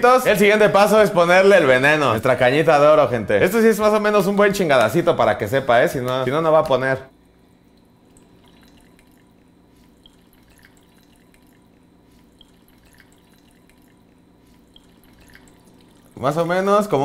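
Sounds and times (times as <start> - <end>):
liquid trickling onto ice: 7.1 - 17.0.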